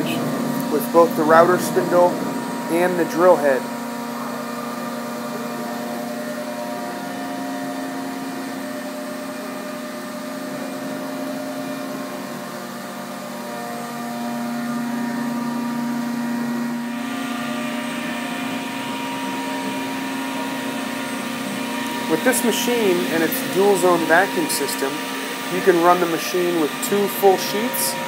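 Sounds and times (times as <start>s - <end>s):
cnc router spindle hum and whine: 0.0s - 28.0s
dust extraction hiss: 17.2s - 28.0s.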